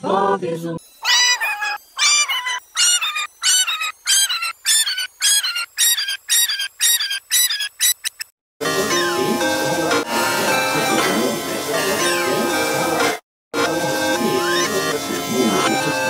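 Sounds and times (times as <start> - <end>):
high-pitched cartoon call: 1.0 - 8.2.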